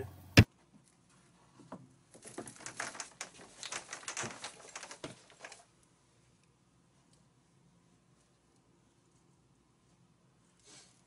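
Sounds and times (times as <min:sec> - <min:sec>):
plastic pipe rustling and scraping: 0:00.6 - 0:05.7.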